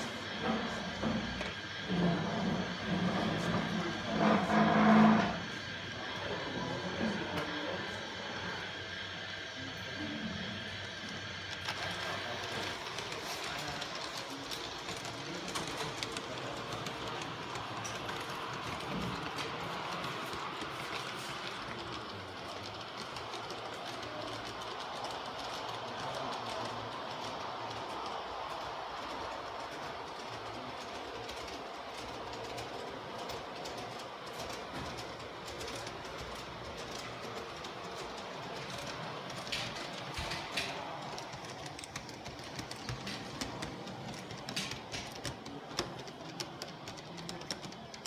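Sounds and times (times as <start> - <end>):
model train rolling on track: 0.0 - 48.0
wheels clicking over rail joints: 11.6 - 48.0.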